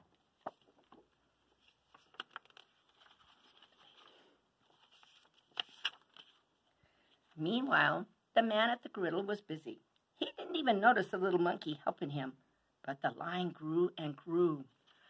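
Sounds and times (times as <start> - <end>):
book pages turning: 0.1 - 6.6.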